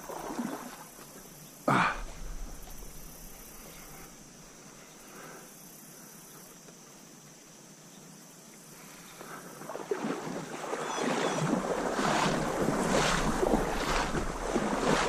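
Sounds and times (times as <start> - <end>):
rough rustling and rushing noise: 11.3 - 15.0.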